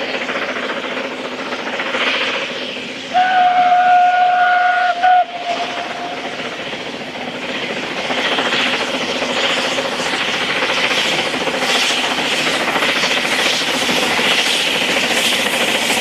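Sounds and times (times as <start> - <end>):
train running: 0.0 - 16.0
steam locomotive whistle: 3.1 - 6.3.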